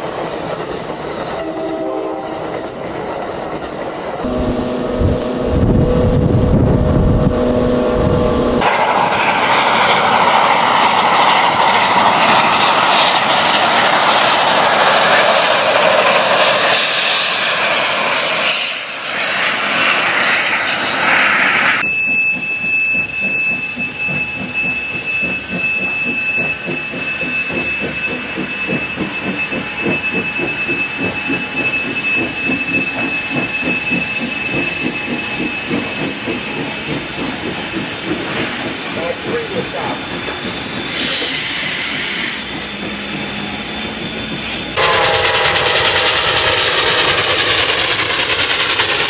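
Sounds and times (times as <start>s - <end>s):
steam locomotive chuffing: 0.0s - 49.0s
train passing rush: 0.0s - 49.0s
train horn two-note chord: 1.4s - 2.4s, 4.2s - 8.6s
steady high tone: 4.2s - 8.7s, 43.2s - 49.0s.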